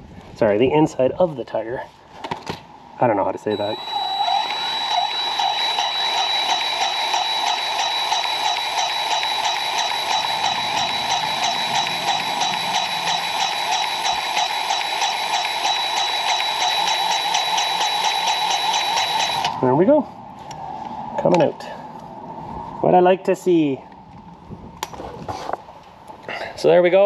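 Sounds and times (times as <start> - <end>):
grease gun motor whining: 3.5 - 19.6.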